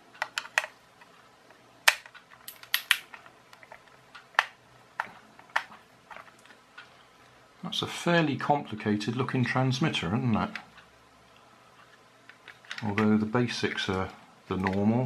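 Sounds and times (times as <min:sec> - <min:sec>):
plastic clicks and knocks: 0:01.9 - 0:06.6, 0:12.2 - 0:13.2.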